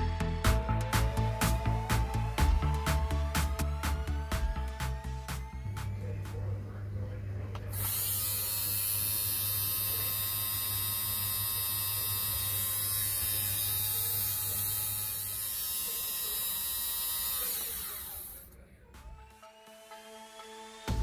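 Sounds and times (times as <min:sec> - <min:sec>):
lint remover motor whining: 0:07.6 - 0:18.6.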